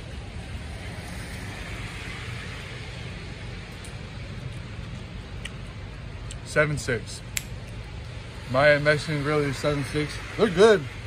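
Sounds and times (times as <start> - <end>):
tyres hissing on wet street: 0.0 - 6.2, 8.2 - 11.0.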